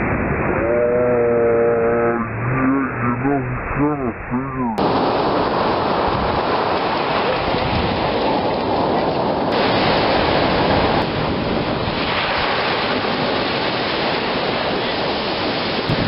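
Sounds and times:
ocean surf breaking on beach: 4.8 - 16.0
wind buffeting microphone: 4.8 - 16.0.

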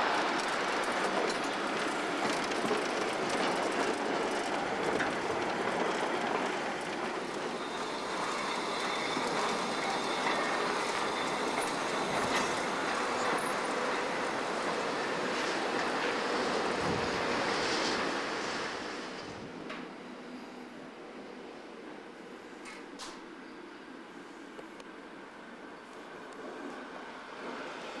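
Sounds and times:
wagon wheels rumbling on rails: 0.0 - 17.8
faint wheel squeal: 7.5 - 14.0.

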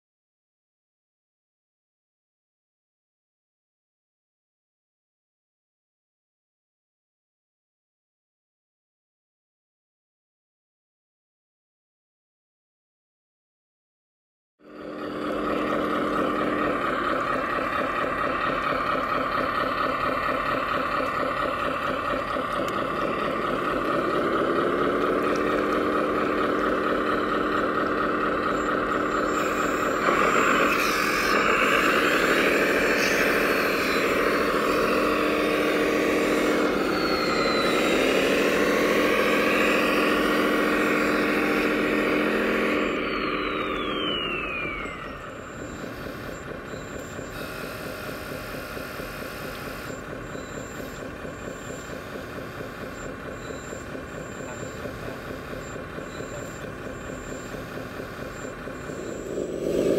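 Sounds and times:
simulated diesel engine idling and revving: 14.6 - 59.9.

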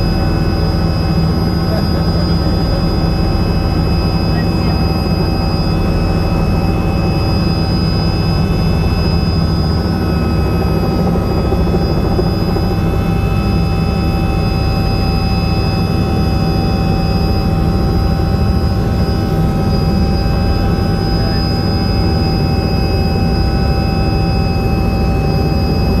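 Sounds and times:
helicopter engine and rotor drone: 0.0 - 26.0.

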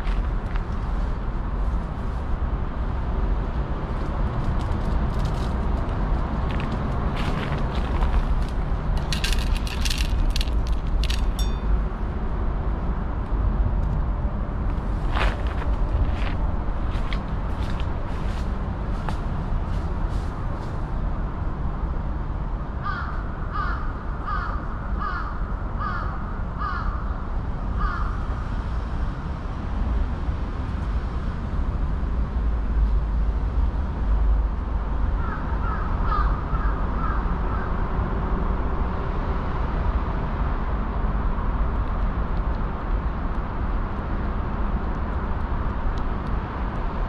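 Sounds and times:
steady low rumble: 0.0 - 47.0
crow cawing: 22.8 - 27.1, 27.8 - 28.2, 35.2 - 37.7.

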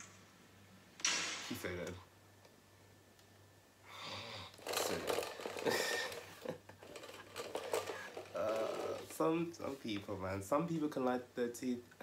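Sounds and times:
man's breathy laughter: 5.6 - 6.8.

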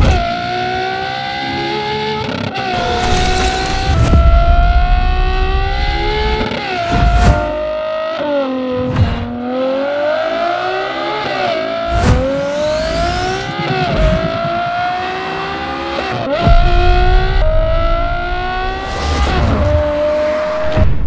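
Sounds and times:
sports car exhaust accelerating hard: 11.9 - 20.8.

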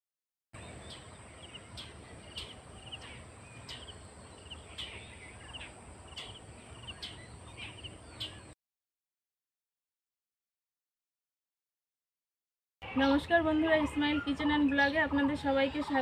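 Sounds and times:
high insect drone: 0.6 - 7.1
birds chirping: 0.6 - 8.6, 12.8 - 16.0.

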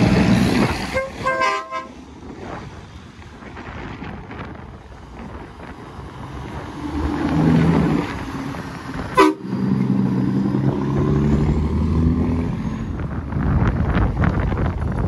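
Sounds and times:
road noise: 0.0 - 15.0
truck horn blasts: 0.9 - 2.0, 9.1 - 9.6.

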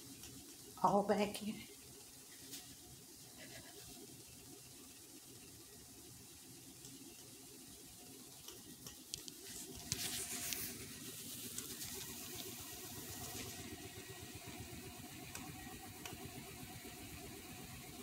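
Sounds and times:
phone rustling against clothing: 9.2 - 13.7.

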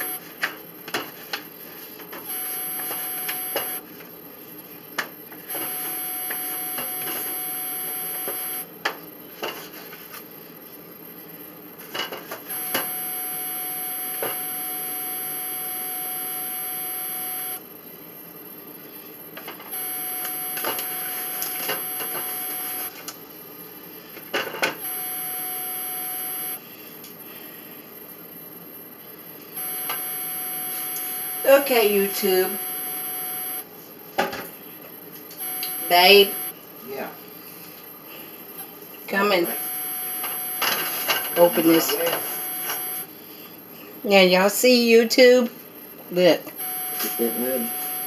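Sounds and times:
electrical hum: 0.0 - 48.0
high whine: 5.4 - 8.7, 12.5 - 17.6, 18.9 - 23.0, 24.8 - 33.7, 35.4 - 36.6.

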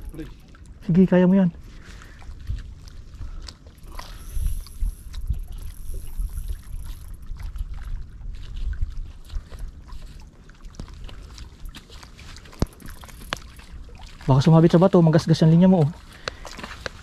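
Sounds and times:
wind buffeting microphone: 0.0 - 14.7
sea water splashing: 0.0 - 17.0.

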